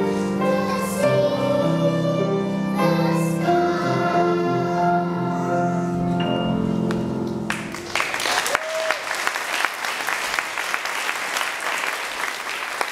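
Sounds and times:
children's choir singing: 0:00.0 - 0:06.0
audience applause: 0:07.5 - 0:12.9.

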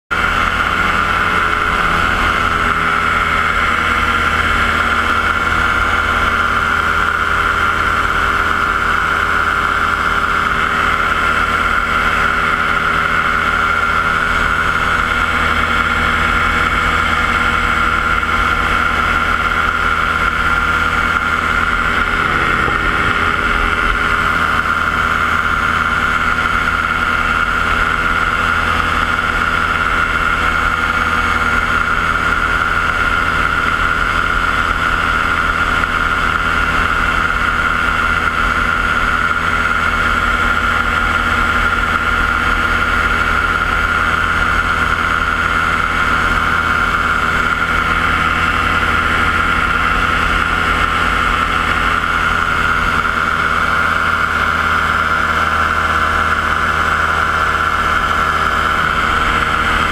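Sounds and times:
paramotor engine drone: 0:00.0 - 0:59.9.

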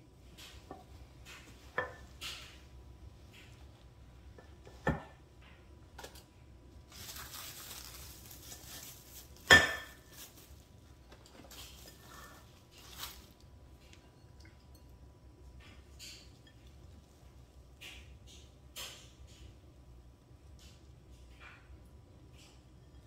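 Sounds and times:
plastic wrap crinkling: 0:06.8 - 0:13.5.

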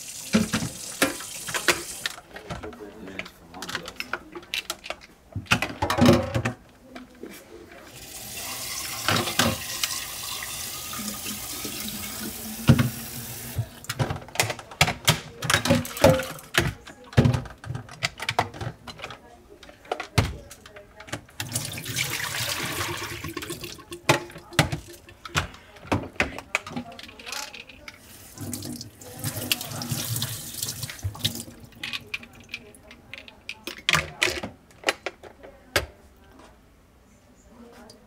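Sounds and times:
tap water running into sink: 0:00.0 - 0:02.1, 0:08.0 - 0:13.9, 0:21.4 - 0:25.0, 0:28.0 - 0:31.6.

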